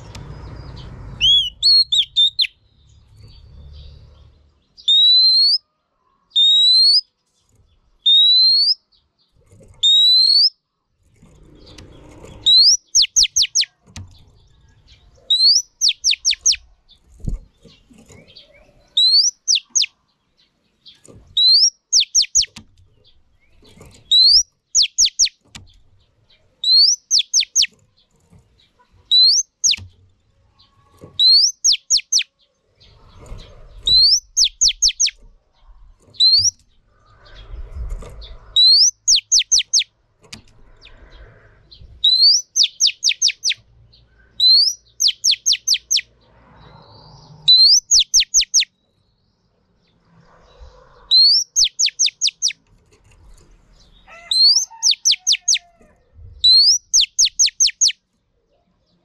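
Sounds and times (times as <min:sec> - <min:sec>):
bird calling with whistles: 0:01.2 - 0:02.6, 0:04.8 - 0:05.6, 0:06.4 - 0:07.1, 0:08.0 - 0:08.8, 0:09.8 - 0:10.6, 0:12.4 - 0:13.7, 0:15.3 - 0:16.6, 0:19.0 - 0:19.9, 0:21.4 - 0:22.6, 0:24.1 - 0:25.4, 0:26.6 - 0:27.7, 0:29.1 - 0:29.8, 0:31.2 - 0:32.3, 0:33.9 - 0:35.2, 0:36.2 - 0:36.6, 0:38.6 - 0:39.9, 0:42.0 - 0:43.6, 0:44.4 - 0:46.1, 0:47.4 - 0:48.7, 0:51.1 - 0:52.6, 0:54.1 - 0:55.7, 0:56.4 - 0:58.0.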